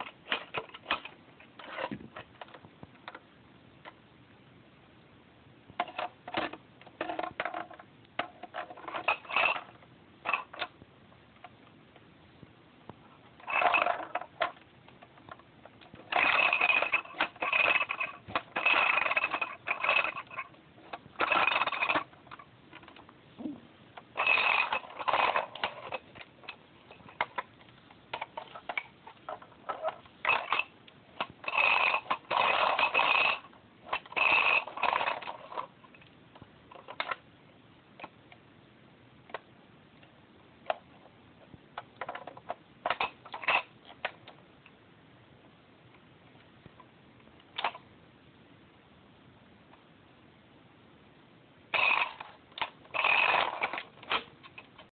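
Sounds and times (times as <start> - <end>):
plastic toy rattling: 0.0 - 3.2, 5.8 - 10.8, 13.3 - 36.1, 36.7 - 37.2, 41.8 - 44.4, 47.6 - 47.8, 51.7 - 54.9.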